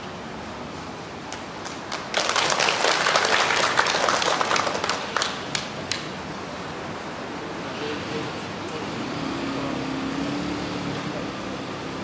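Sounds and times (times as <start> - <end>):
hand clapping: 1.3 - 6.1.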